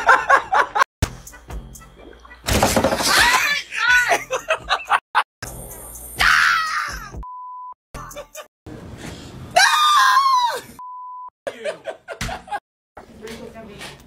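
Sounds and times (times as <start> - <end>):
censor bleep: 7.2 - 7.8
person screaming: 9.6 - 10.8.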